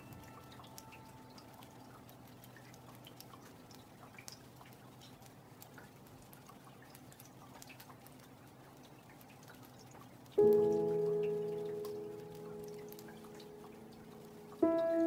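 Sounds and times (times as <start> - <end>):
rain dripping on pond: 0.0 - 15.0.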